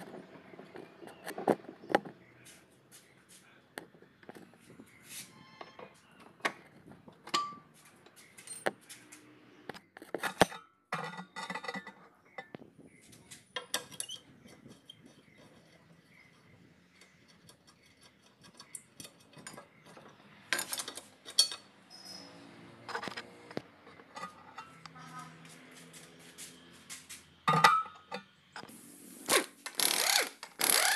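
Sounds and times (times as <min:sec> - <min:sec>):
hand tools clinking on metal: 0:18.5 - 0:21.8.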